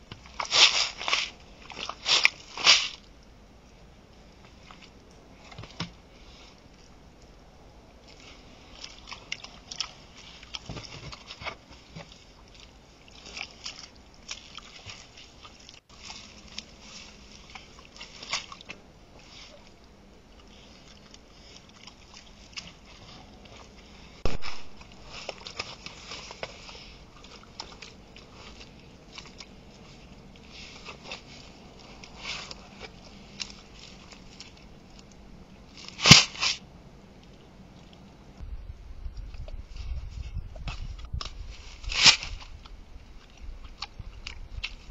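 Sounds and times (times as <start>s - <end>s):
boar chewing maize: 4.3s - 36.0s.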